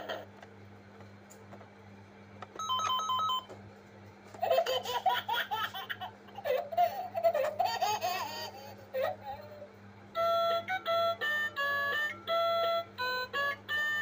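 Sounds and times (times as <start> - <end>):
electronic ringing beep: 2.6 - 3.5
person laughing: 4.4 - 9.6.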